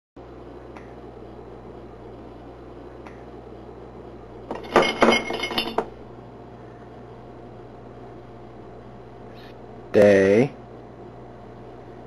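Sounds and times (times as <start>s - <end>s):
glass jar clattering and clinking: 4.5s - 5.9s.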